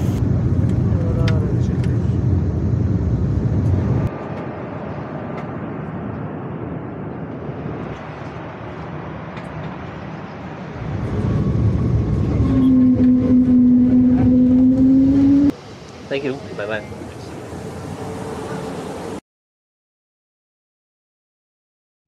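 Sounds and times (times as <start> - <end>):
vehicle engine and road rumble: 0.0 - 19.2
steady droning tone: 10.8 - 15.5.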